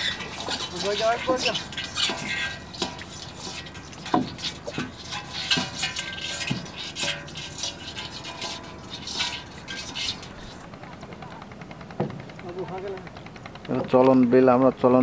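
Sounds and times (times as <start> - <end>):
crab legs scratching on metal: 0.0 - 10.7.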